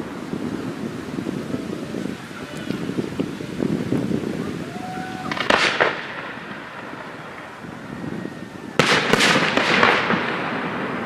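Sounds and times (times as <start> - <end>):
firework bangs and crackling: 0.0 - 11.0.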